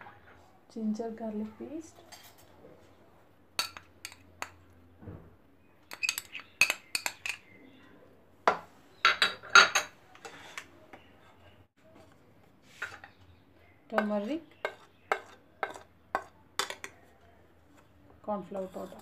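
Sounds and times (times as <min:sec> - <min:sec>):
metal spoon clinking on dish: 0:03.6 - 0:04.6, 0:05.9 - 0:07.5.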